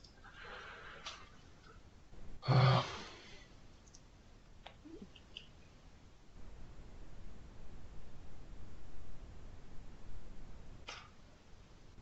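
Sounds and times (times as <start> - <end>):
person sighing: 2.4 - 3.4
click: 3.8 - 5.5.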